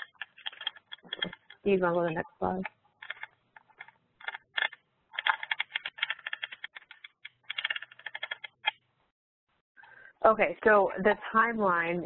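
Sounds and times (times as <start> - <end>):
computer keyboard typing: 0.0 - 2.0, 2.6 - 8.8.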